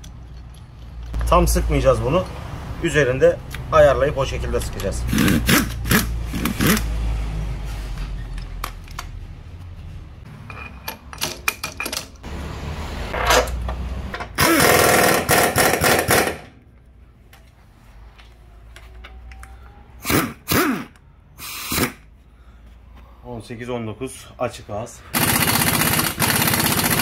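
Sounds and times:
pneumatic impact wrench rattling: 5.1s - 6.9s, 14.3s - 16.5s, 20.0s - 22.0s, 25.2s - 27.0s
metal clicks and knocks: 10.5s - 12.2s.

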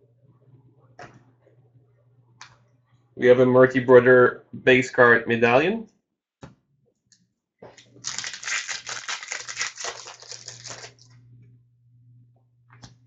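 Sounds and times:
wrapper crinkling: 7.8s - 11.1s.

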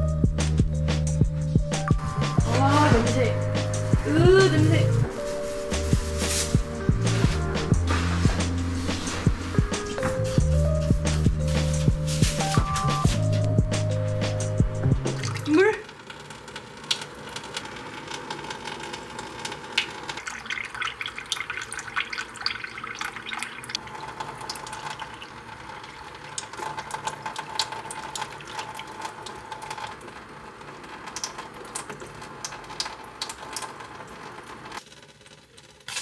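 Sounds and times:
water running from faucet: 1.6s - 36.0s.

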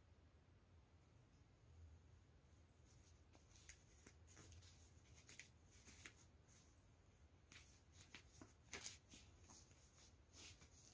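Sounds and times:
faint scratchy rustles: 2.5s - 10.9s.

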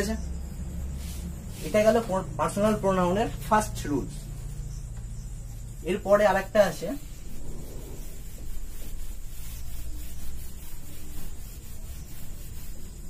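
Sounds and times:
eraser rubbing on whiteboard: 6.0s - 13.0s.

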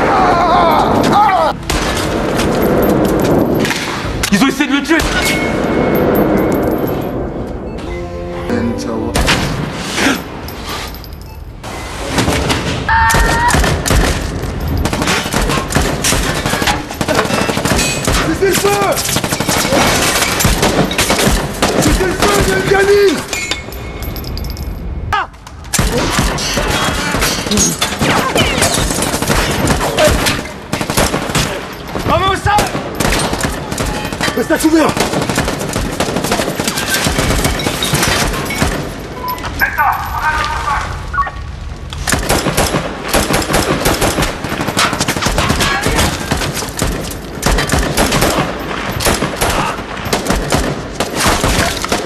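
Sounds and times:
rapid rifle gunfire: 14.8s - 22.8s, 28.0s - 31.6s, 32.6s - 37.6s, 42.1s - 52.0s.

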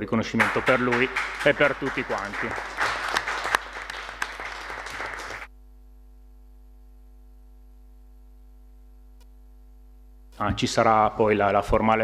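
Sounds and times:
small group applauding: 0.3s - 5.5s.

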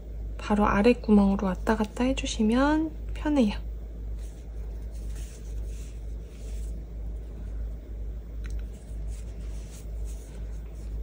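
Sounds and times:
steady low hum: 0.0s - 11.0s
yarn rustling through fabric: 4.1s - 7.2s, 8.6s - 11.0s.

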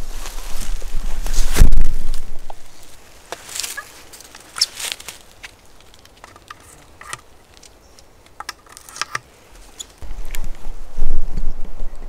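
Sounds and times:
faint rustling and crackling: 0.0s - 12.0s.

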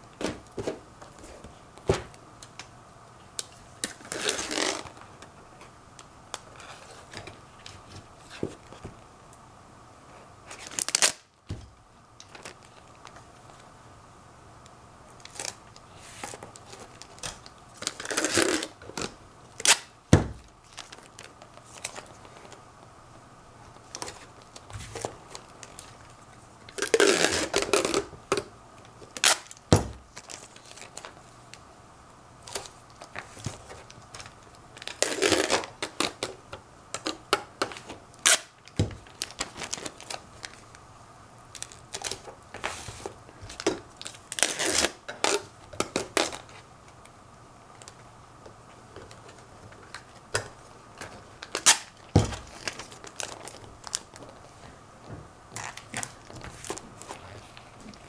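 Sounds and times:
packing tape crinkling: 3.4s - 5.3s, 10.4s - 11.3s, 12.2s - 13.7s, 15.1s - 22.6s, 23.8s - 31.6s, 32.4s - 40.8s, 41.5s - 47.1s, 48.9s - 54.6s, 55.5s - 58.0s.

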